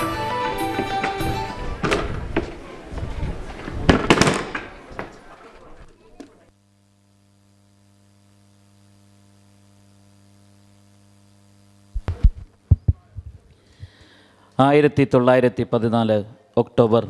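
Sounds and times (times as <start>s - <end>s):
plastic chair knocks and thuds: 1.8s - 2.5s
faint electrical hum: 4.6s - 14.8s.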